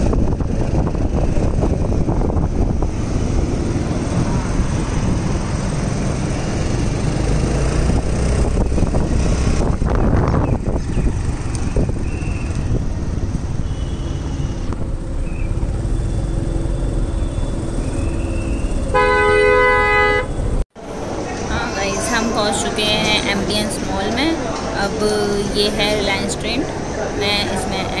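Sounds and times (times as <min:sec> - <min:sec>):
car engine and tyres rumbling: 0:00.0 - 0:28.0
car horn: 0:13.6 - 0:14.7, 0:17.2 - 0:20.6.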